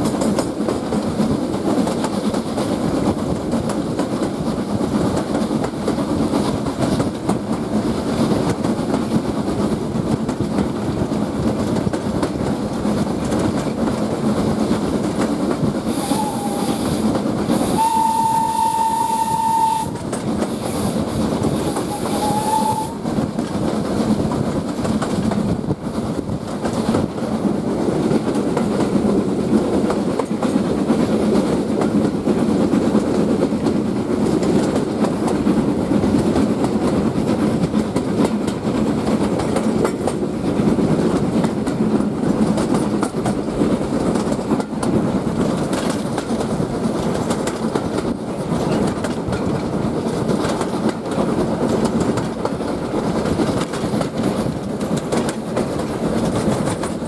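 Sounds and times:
train wheels rumbling on rails: 0.0 - 57.0
clicks over rail joints: 23.2 - 57.0.

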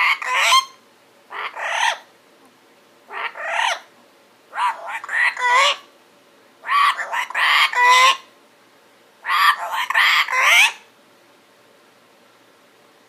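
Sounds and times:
parrot speech-like chatter: 0.0 - 0.7, 1.3 - 2.0, 3.1 - 3.8, 4.5 - 5.9, 6.6 - 8.3, 9.2 - 10.8.

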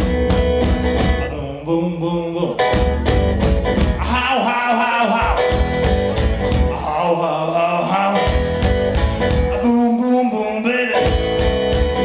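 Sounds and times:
bass: 0.0 - 12.0
drums: 0.0 - 12.0
electric guitar: 0.0 - 12.0
person singing: 1.1 - 3.2, 4.0 - 5.6, 6.5 - 8.6, 9.3 - 12.0.

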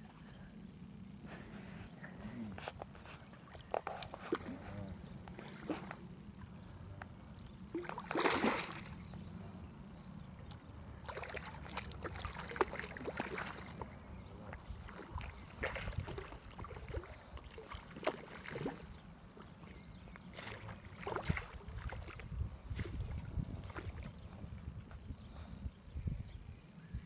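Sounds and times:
fish splashing in shallow water: 2.8 - 6.6, 7.6 - 9.3, 10.4 - 24.3.

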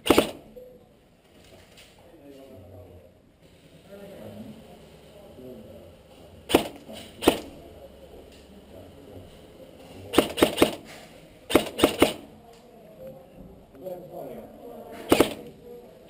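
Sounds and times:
airsoft gun shots: 0.0 - 0.5, 6.5 - 7.6, 10.1 - 12.3, 15.1 - 15.5.

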